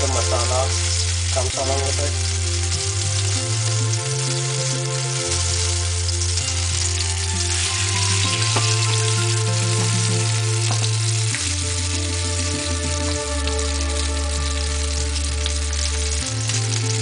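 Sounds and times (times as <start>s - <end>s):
background music with bass line: 0.0s - 17.0s
chicken sizzling in oil: 0.0s - 17.0s.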